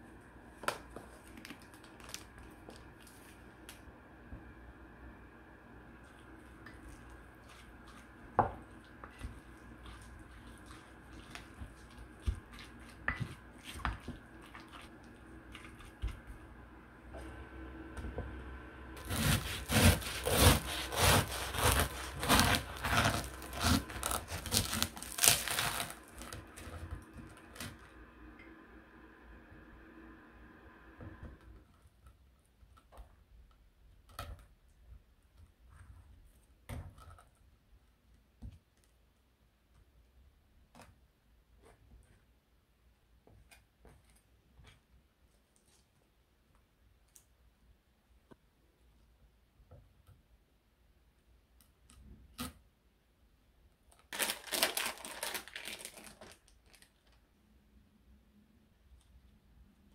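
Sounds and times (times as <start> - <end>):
plastic wrapper crinkling: 1.1 - 3.8, 21.2 - 27.8, 54.0 - 57.3.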